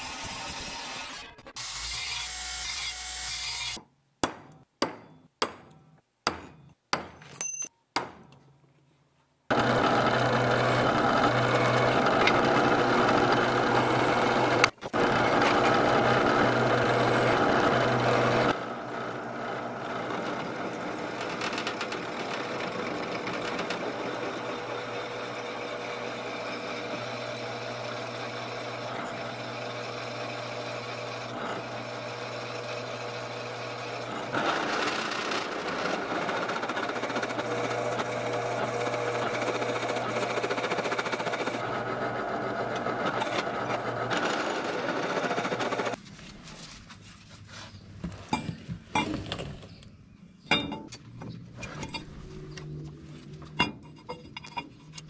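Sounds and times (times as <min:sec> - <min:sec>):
belt grinder grinding steel: 0:09.5 - 0:46.0
drill press drilling steel: 0:09.5 - 0:46.0.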